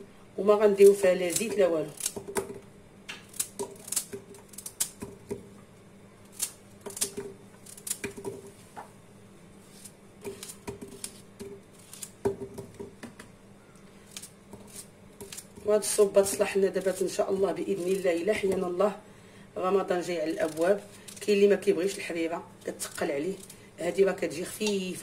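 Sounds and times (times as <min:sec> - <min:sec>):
knife cutting vegetables: 0:06.3 - 0:08.5, 0:09.6 - 0:12.5, 0:14.1 - 0:18.7.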